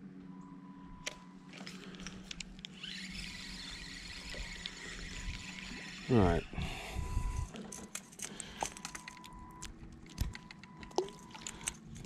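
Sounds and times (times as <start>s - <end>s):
low steady hum: 0.0s - 12.0s
fishing reel clicks and whir: 1.5s - 9.3s.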